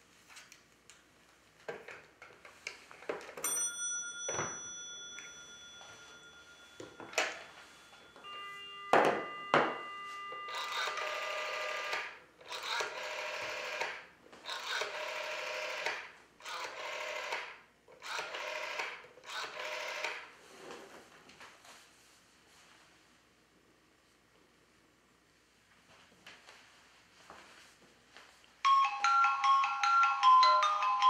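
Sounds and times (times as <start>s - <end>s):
dial tone: 6.7s - 12.1s
rotary dial whirring: 10.4s - 20.3s.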